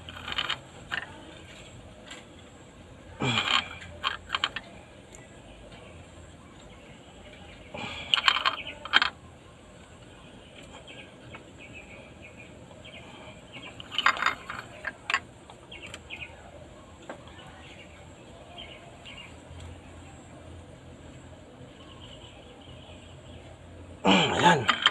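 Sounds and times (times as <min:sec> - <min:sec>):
faint bird chirps: 0:10.0 - 0:24.4.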